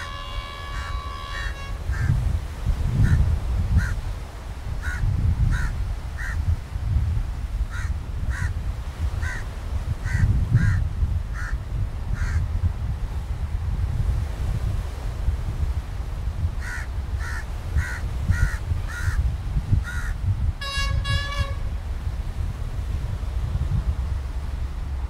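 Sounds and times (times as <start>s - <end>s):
crows cawing: 0.0s - 2.2s, 4.8s - 6.4s, 7.7s - 8.5s, 9.2s - 9.4s, 10.1s - 10.8s, 11.4s - 11.6s, 12.2s - 12.4s, 16.6s - 19.2s, 19.8s - 20.2s.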